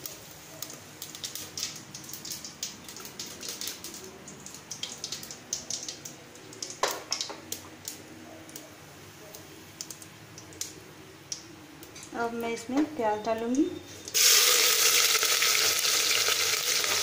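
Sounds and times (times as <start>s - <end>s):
seeds crackling in hot oil: 0.0s - 17.0s.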